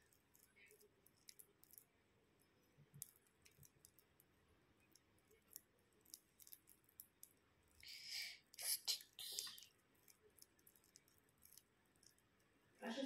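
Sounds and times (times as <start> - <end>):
small clicks of slime: 0.0 - 1.9, 2.9 - 12.5.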